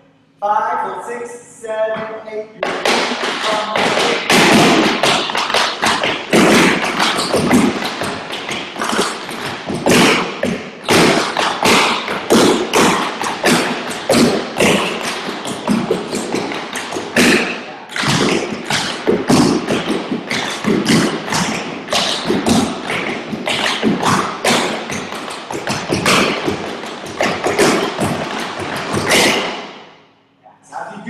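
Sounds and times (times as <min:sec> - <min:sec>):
tap shoes on wooden boards: 0:02.6 - 0:29.5.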